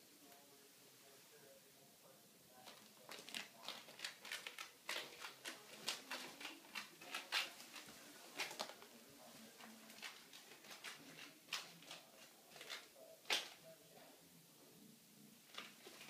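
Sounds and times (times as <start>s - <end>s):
claws scratching in plastic tube: 2.7s - 8.9s, 9.5s - 13.6s.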